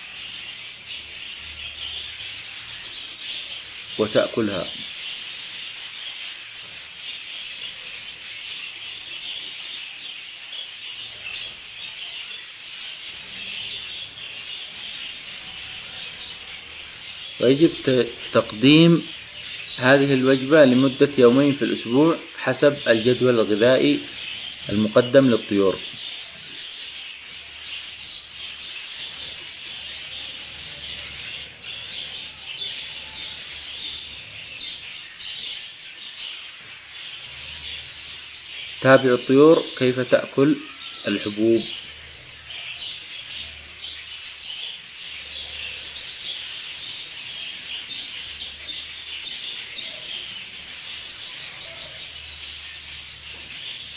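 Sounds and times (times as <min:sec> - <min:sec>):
budgerigars chattering: 0:00.0 - 0:53.9.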